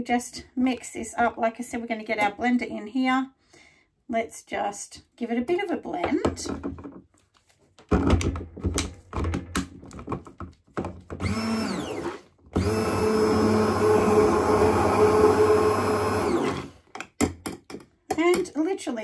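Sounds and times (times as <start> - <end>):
stick blender motor running: 11.2 - 16.8.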